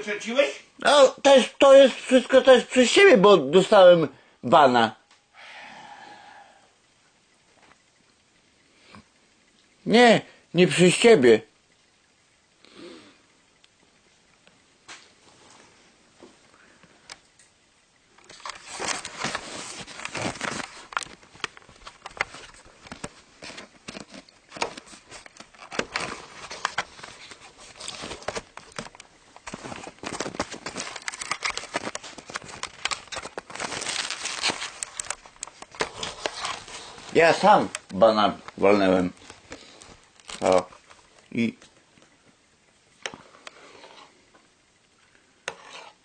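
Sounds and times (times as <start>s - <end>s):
recording device handling noise: 13.5s - 46.0s.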